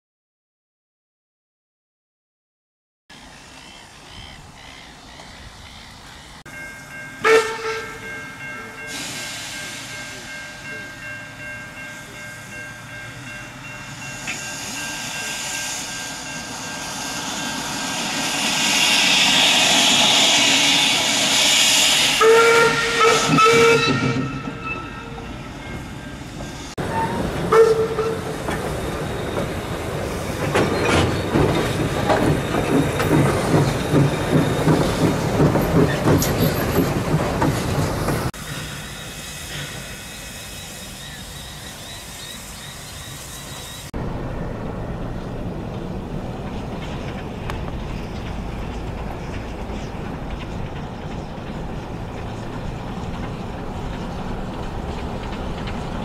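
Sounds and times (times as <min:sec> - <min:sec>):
steam whistle blasts: 0:07.2 - 0:08.2, 0:14.3 - 0:25.4, 0:26.8 - 0:28.4
steam hissing: 0:07.6 - 0:24.6, 0:25.2 - 0:44.0.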